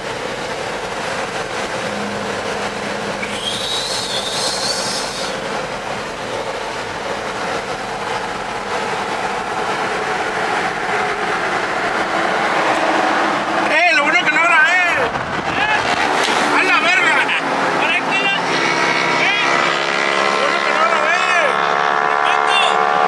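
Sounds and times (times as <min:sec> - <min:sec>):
road and engine noise in cab: 0:00.0 - 0:23.0
high squeal with hiss: 0:03.2 - 0:05.4.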